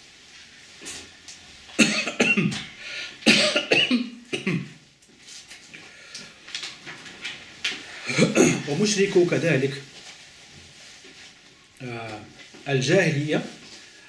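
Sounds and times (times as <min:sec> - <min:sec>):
man coughing: 0:01.8 - 0:04.8, 0:08.1 - 0:08.8.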